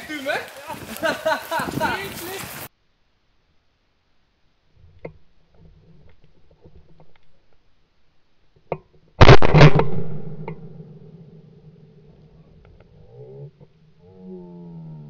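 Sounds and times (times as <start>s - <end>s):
gunshot: 9.2s - 11.8s.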